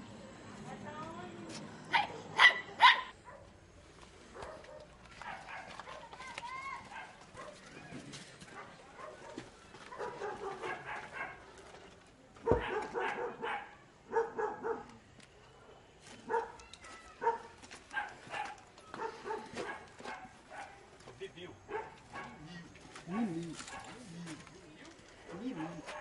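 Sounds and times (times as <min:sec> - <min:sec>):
dog barking: 0:01.9 - 0:03.5, 0:04.3 - 0:06.2, 0:06.8 - 0:07.7, 0:08.5 - 0:11.5, 0:12.4 - 0:14.9, 0:16.2 - 0:16.6, 0:17.2 - 0:20.8, 0:21.7 - 0:24.0, 0:25.4 - 0:26.0.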